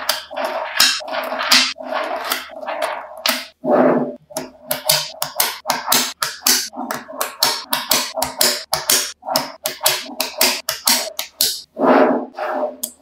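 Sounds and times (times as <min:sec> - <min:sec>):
magnetic balls clicking: 0:04.3 - 0:11.7.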